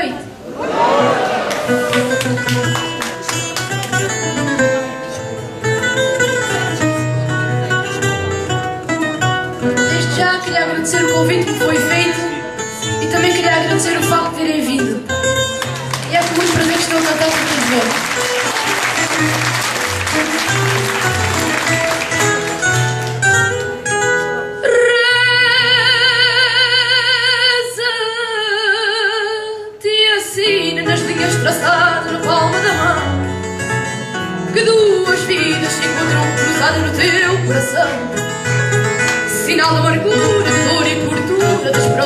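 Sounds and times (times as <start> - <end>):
plucked guitars: 1.0 - 26.9, 30.4 - 42.0
applause: 1.4 - 4.3, 15.5 - 23.7.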